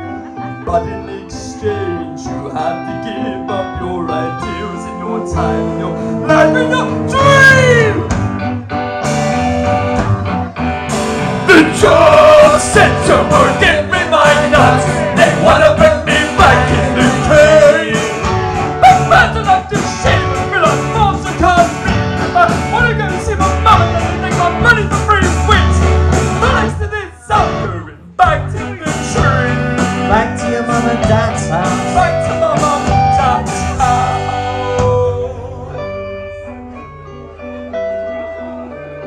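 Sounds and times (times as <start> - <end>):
man singing: 0.0 - 8.2, 11.4 - 36.5
drums: 0.0 - 36.6
bass guitar: 0.0 - 39.0
electric guitars: 0.0 - 39.0.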